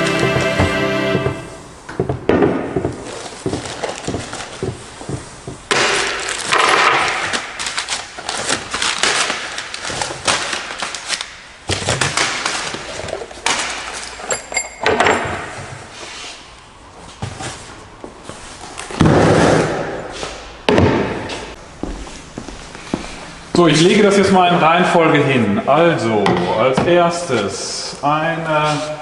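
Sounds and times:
packaging rustling: 6.2 - 14.0
metal parts clinking: 14.1 - 15.2.

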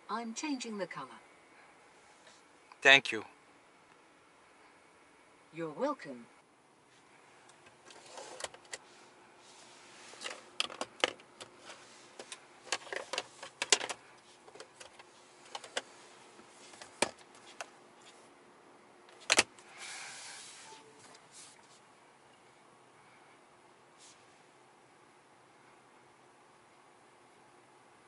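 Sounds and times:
brief hiss: 19.7 - 21.7.

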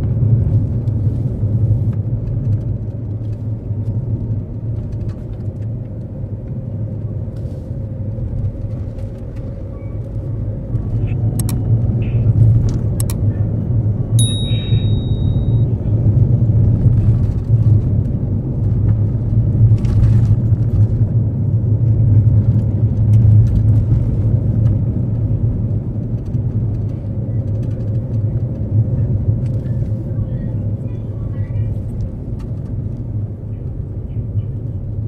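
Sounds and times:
car engine and tyres drone: 0.0 - 35.0
brief high-pitched tone: 14.2 - 15.7.

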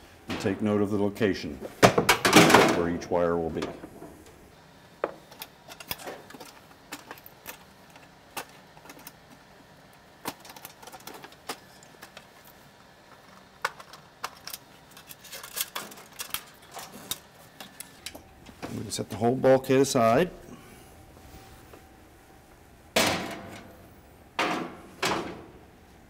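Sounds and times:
wire connectors clicking and rattling: 5.3 - 9.4, 10.2 - 18.6.

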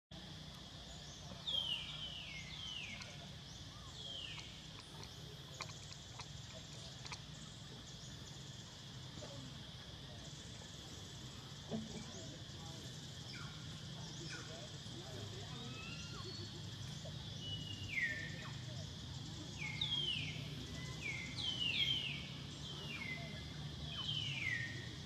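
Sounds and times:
faint clicks: 4.3 - 7.4.

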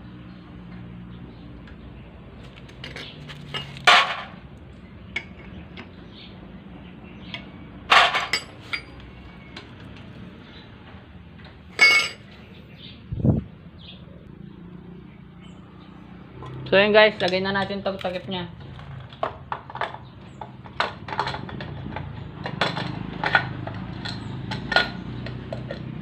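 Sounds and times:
loud metallic tool clinks: 7.9 - 9.0, 11.8 - 12.3.

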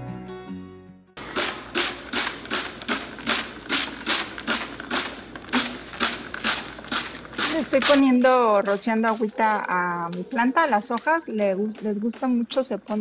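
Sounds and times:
spray bottle hissing squirts: 1.2 - 7.9.

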